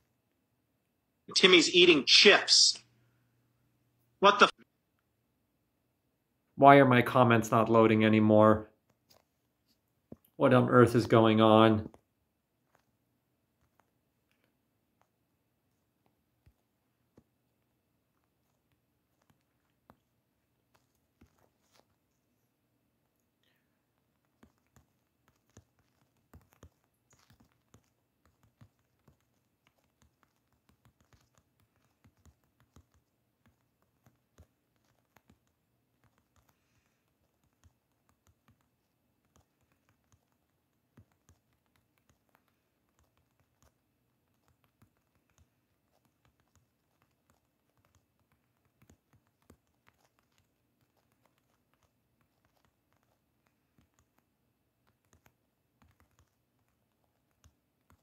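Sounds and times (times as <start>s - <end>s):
typing taps on phone: 24.2s - 58.0s.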